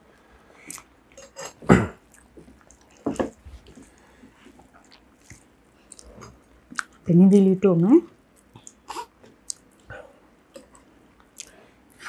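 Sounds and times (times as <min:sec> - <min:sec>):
soft squishing of food by hand: 0:02.0 - 0:07.1
wet mouth smacks and chewing: 0:06.7 - 0:07.0, 0:10.6 - 0:11.5.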